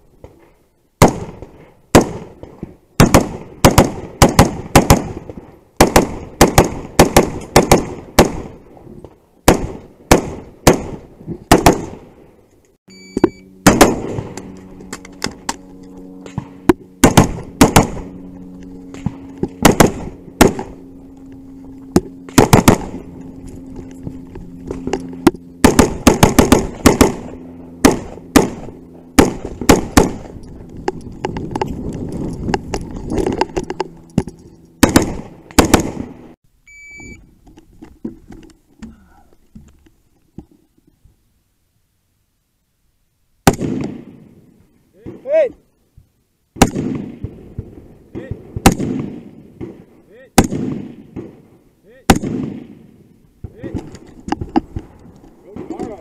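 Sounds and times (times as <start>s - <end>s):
low steady hum: 0.0s - 56.0s
rifle firing rapid shots: 1.0s - 2.4s, 3.0s - 8.5s, 9.5s - 12.0s, 13.6s - 14.3s, 17.0s - 18.2s, 19.0s - 20.8s, 22.3s - 23.0s, 25.6s - 30.3s, 34.8s - 36.1s.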